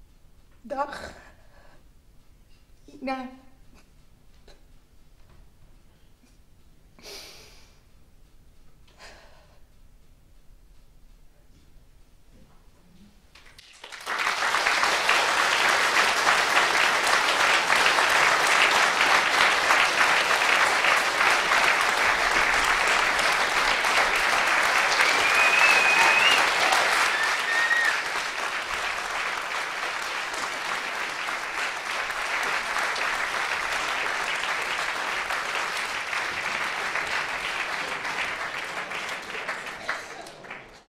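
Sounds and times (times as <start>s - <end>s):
audience applauding: 13.3s - 40.9s
rising whistle-like tone: 25.0s - 28.0s.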